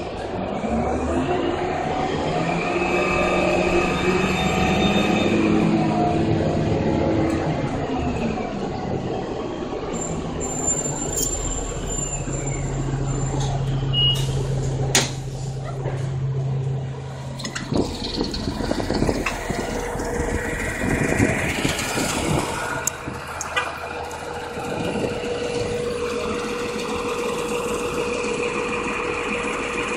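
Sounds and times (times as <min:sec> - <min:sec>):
bus engine hum: 0:00.0 - 0:29.9
steady whine: 0:16.7 - 0:29.9.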